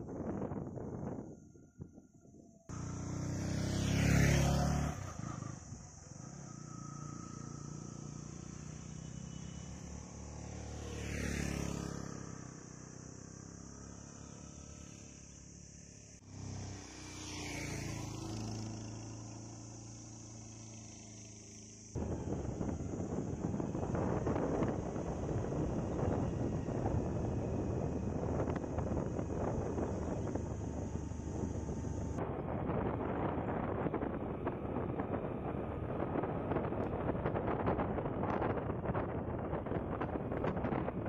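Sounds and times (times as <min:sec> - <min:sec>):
road vehicles passing: 0:00.0 - 0:41.0.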